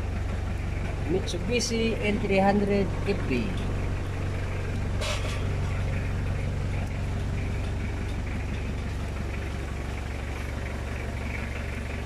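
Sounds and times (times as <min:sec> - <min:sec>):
van engine idling: 0:00.0 - 0:12.0.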